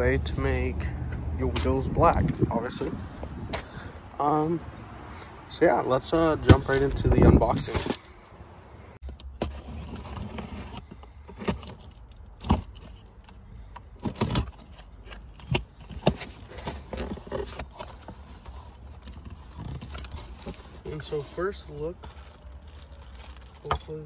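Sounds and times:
cardboard box being opened: 9.4 - 11.8.

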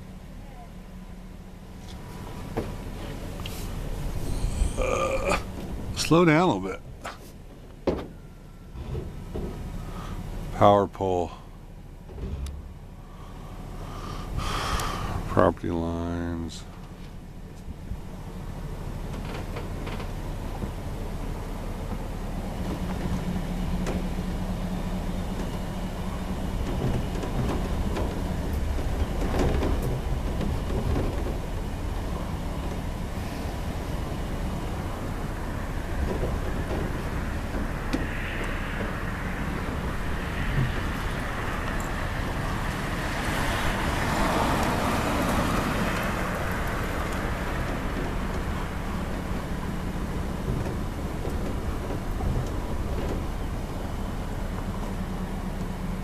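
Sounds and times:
car engine hum: 0.0 - 56.0
road rumble: 0.0 - 56.0
light knocks and rattles: 6.9 - 10.2, 16.7 - 56.0.

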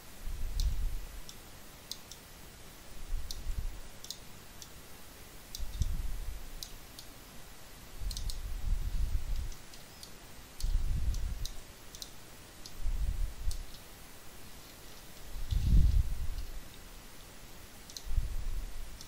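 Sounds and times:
computer mouse clicking: 0.6 - 2.2, 4.0 - 4.8, 5.5 - 6.0, 8.0 - 8.4, 9.3 - 12.8, 13.4 - 13.9, 17.8 - 18.1
low muffled rumbles: 15.2 - 16.8.

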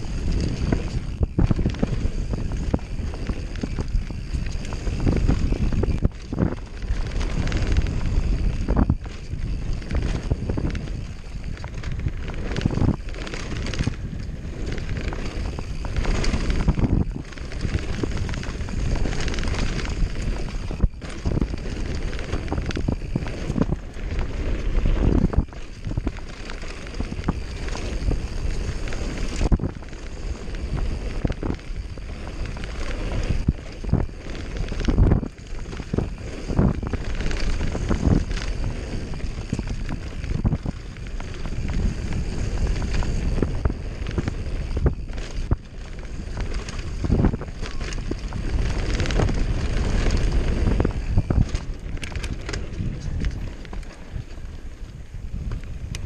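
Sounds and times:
bike rattling and knocking: 0.0 - 56.0
tyres rolling on dirt: 0.0 - 56.0
wind buffeting microphone: 0.0 - 56.0.

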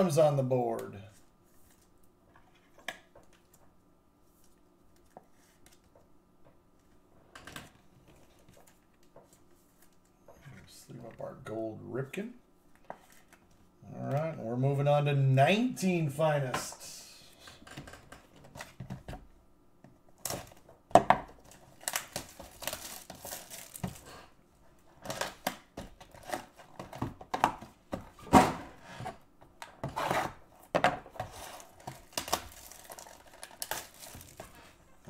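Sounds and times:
packaging tearing and crinkling: 21.4 - 24.1, 31.6 - 34.6.

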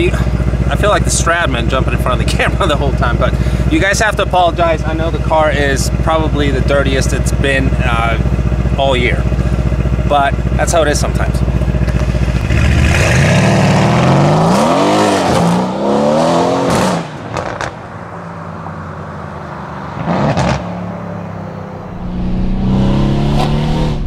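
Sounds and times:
exhaust cracks: 0.0 - 18.1, 19.9 - 20.7
car engine accelerating hard: 11.1 - 24.0.

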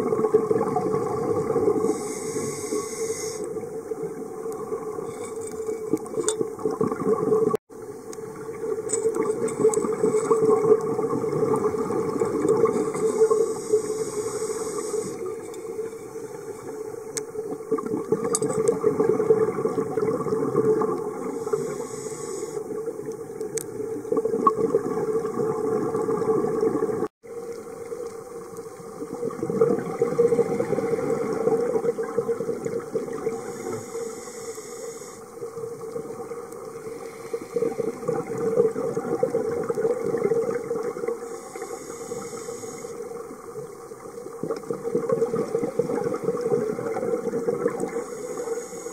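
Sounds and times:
underwater exhaled bubbles: 0.0 - 48.9
regulator inhalation hiss: 1.8 - 3.6, 12.8 - 16.8, 21.2 - 22.7, 33.3 - 35.5, 36.8 - 38.0, 41.2 - 43.2, 47.8 - 48.9.

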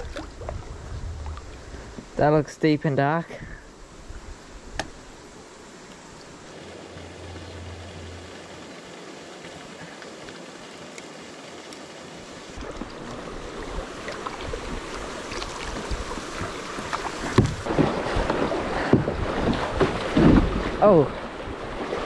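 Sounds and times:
wind buffeting microphone: 0.0 - 2.2
river water rushing and splashing: 0.0 - 22.0
knocks against boat: 17.2 - 20.8.

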